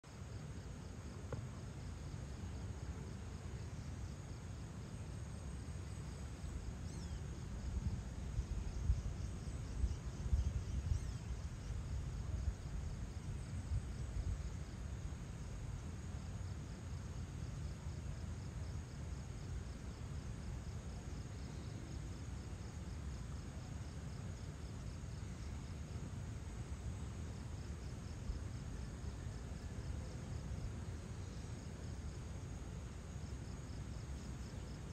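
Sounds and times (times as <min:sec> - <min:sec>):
insects chirping trill: 0:00.1 - 0:34.9.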